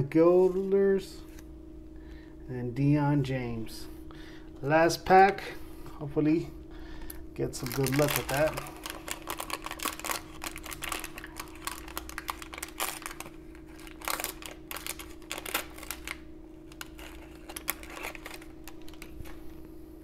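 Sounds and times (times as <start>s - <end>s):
wax paper wrapper crackling and tearing: 7.4s - 19.5s.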